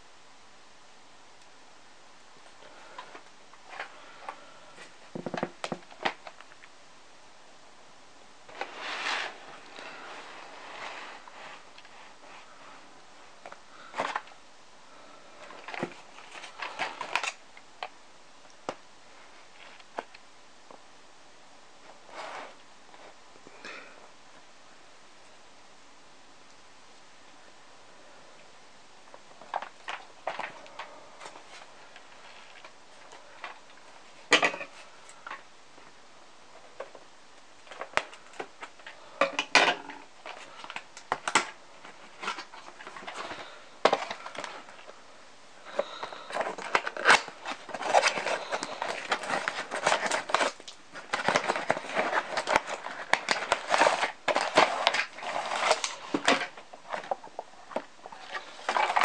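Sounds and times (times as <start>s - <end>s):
packaging rustling and crinkling: 2.8s - 6.7s, 8.4s - 14.4s, 15.3s - 18.0s, 29.1s - 35.9s, 36.5s - 45.0s, 45.6s - 59.0s.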